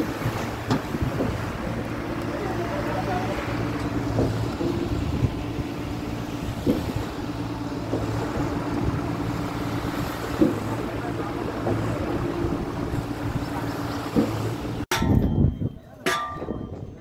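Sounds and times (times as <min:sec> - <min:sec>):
engine humming: 0:00.0 - 0:14.9.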